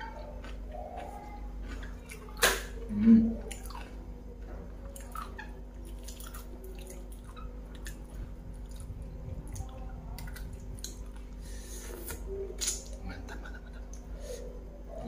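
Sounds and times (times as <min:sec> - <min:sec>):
chewing crispy food: 0:00.0 - 0:11.4.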